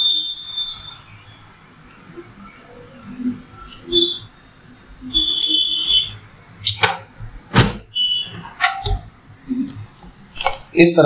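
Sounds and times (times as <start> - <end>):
short high squealing tones: 3.5 - 4.4.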